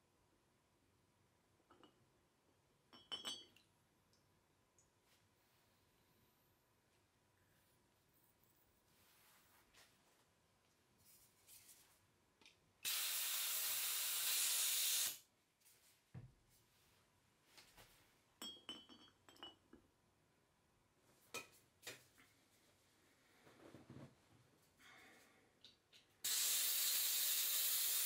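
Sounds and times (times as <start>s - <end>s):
light clicks and glassy clinks: 2.9s - 3.7s, 18.4s - 19.7s
pressurised gas hissing: 12.9s - 15.2s, 26.2s - 28.0s.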